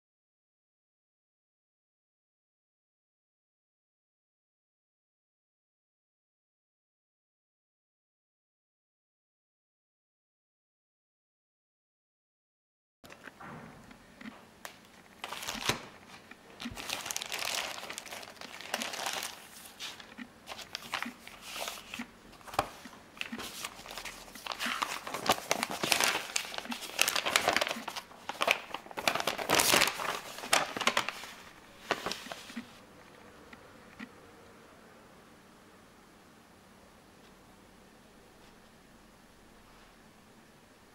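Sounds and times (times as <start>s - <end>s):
paper rustling and crinkling: 14.9s - 32.8s.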